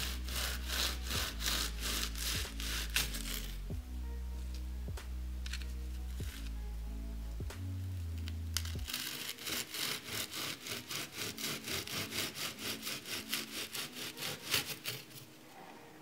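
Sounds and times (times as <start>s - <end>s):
knife sawing through pastry: 0.0s - 3.7s, 8.6s - 15.3s.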